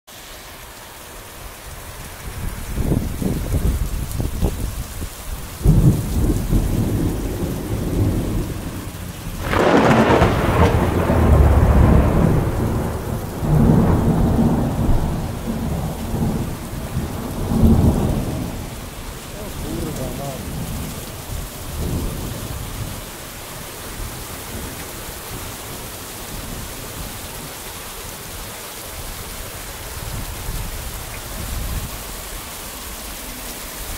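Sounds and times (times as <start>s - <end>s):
heavy rain pouring: 0.1s - 33.9s
thunder rumbling: 2.3s - 27.6s
thunder crack: 5.6s - 20.9s.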